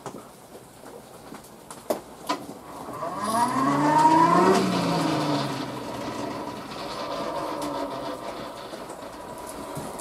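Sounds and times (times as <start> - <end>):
forge blower fan whine: 2.6 - 10.0.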